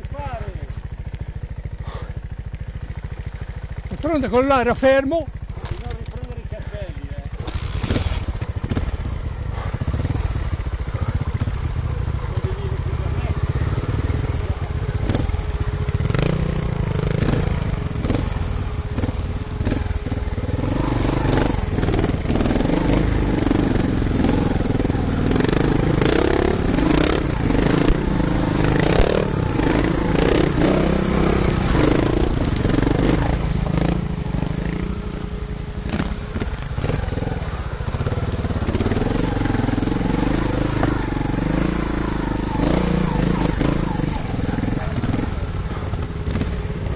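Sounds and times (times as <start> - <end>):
motorcycle engine running: 0.0 - 46.9
wheels clattering on stones: 31.5 - 34.7.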